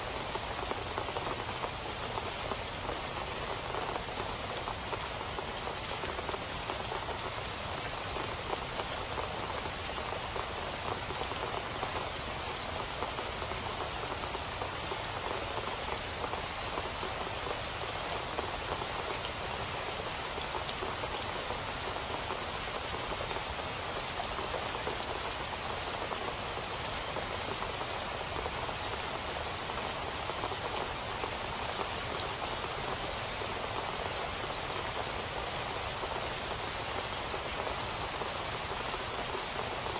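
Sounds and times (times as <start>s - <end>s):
steady rain on asphalt: 0.0s - 39.9s.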